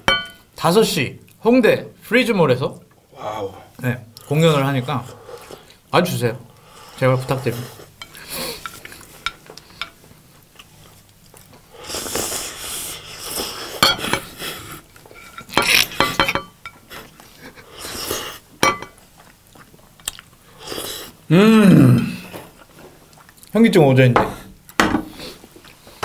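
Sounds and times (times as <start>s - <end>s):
wet chewing: 19.1s - 20.4s, 22.6s - 23.6s.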